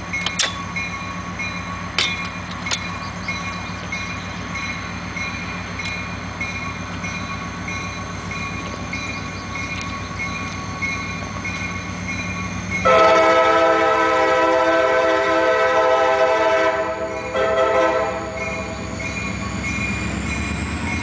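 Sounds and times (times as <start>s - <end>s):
diesel locomotive engine rumbling: 0.0s - 21.0s
locomotive air horn blast: 12.9s - 18.4s.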